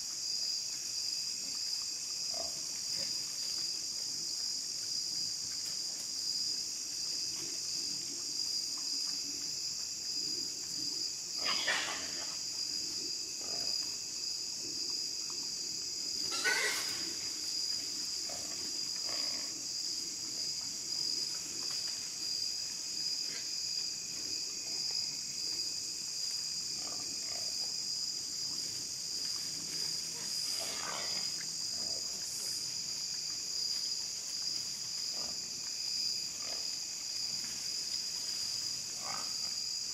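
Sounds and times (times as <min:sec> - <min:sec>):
insects chirring: 0:00.0 - 0:39.9
hogs squealing: 0:16.3 - 0:17.0.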